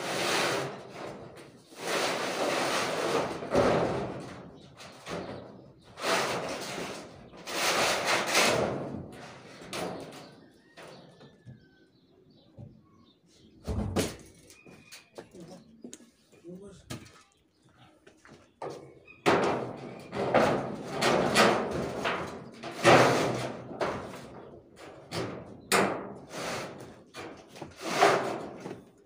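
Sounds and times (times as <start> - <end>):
metal sheets scraping: 0.0 - 10.4, 19.2 - 28.8.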